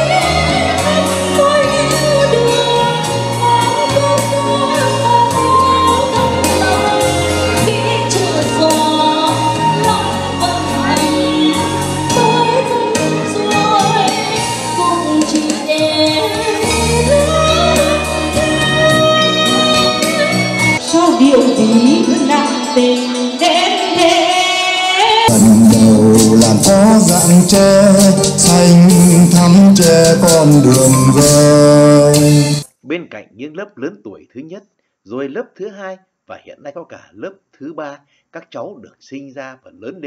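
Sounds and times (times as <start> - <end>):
woman singing into microphone: 0.0 - 32.6
instrumental backing track: 0.0 - 32.7.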